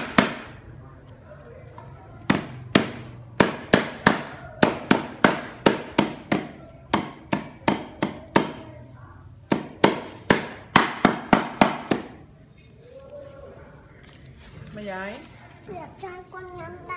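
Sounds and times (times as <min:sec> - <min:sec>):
chopping on a wooden block: 0:00.0 - 0:00.6, 0:02.3 - 0:08.7, 0:09.5 - 0:12.2.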